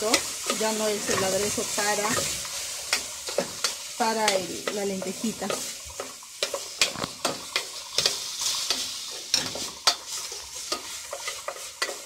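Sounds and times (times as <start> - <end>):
food sizzling in oil: 0.0 - 12.0
wooden spoon scraping a pot: 4.7 - 12.0.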